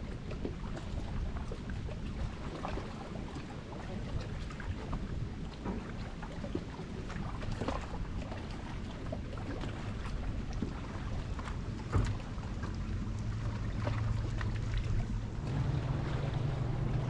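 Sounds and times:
low steady hum: 0.0s - 17.0s
water lapping against boat hull: 0.0s - 17.0s
wind rumbling on microphone: 0.0s - 17.0s
thump: 11.9s - 12.3s.

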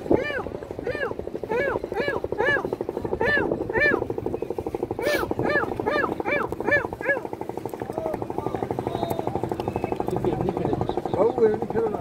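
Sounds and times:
gull calling: 0.0s - 7.4s
boat engine chugging: 0.0s - 12.0s.

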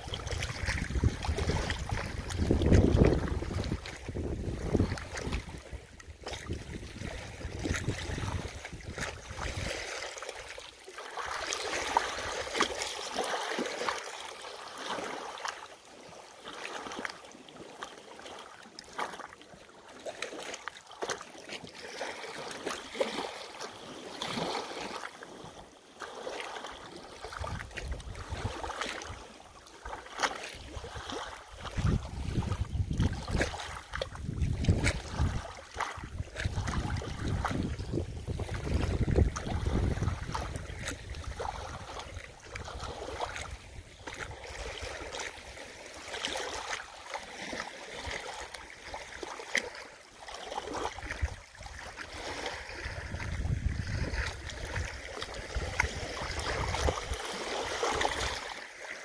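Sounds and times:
wind rumble on microphone: 0.0s - 9.9s, 27.4s - 28.8s, 30.7s - 45.0s, 51.0s - 57.2s
waves lapping on pebble shore: 0.0s - 59.0s.

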